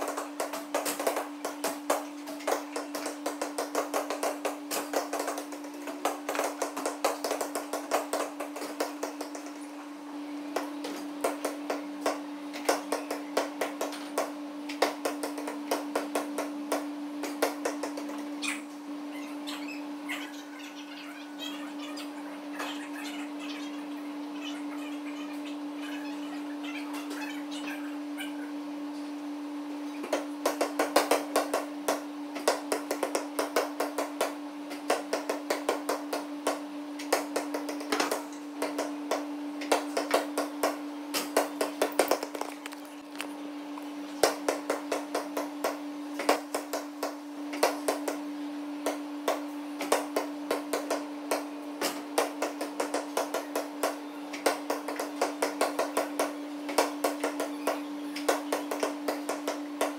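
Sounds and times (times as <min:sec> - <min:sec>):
basketballs bouncing on gym floor: 0:00.0 - 0:09.5, 0:30.0 - 0:42.4
steady hum: 0:00.0 - 0:59.9.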